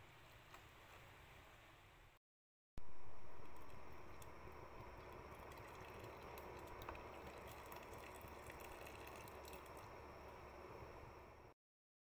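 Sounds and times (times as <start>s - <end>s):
gravy bubbling in a pot: 3.3s - 11.5s.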